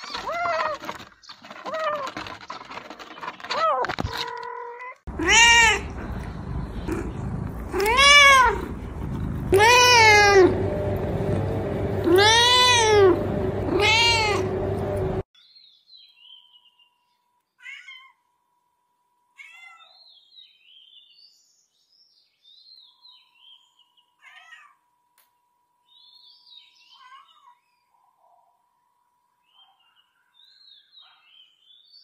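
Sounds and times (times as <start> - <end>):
cat meowing: 4.1 - 6.1, 7.6 - 8.7, 9.5 - 10.6, 12.0 - 14.6, 17.6 - 18.2, 19.4 - 20.0, 24.2 - 24.8.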